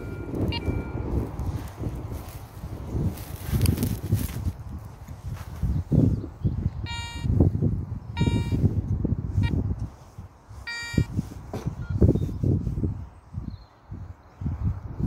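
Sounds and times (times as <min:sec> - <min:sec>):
metal detector buzzing beeps: 0:00.0 - 0:01.4, 0:06.8 - 0:07.4, 0:08.1 - 0:08.7, 0:09.4 - 0:09.7, 0:10.6 - 0:11.2
soil crumbling in gloved hands: 0:03.0 - 0:04.6.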